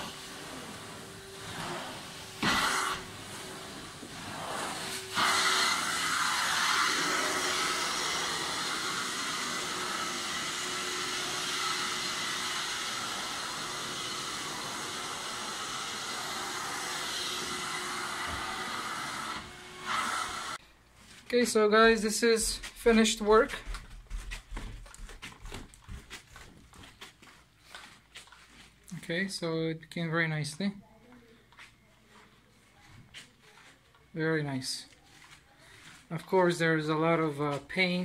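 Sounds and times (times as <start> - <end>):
carpet extraction vacuum hissing: 0.0 - 20.6.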